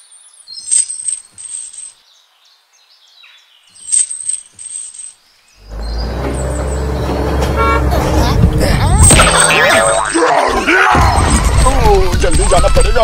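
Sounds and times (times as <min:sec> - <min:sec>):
small metal chain clinking: 0:00.6 - 0:02.0, 0:03.8 - 0:05.2.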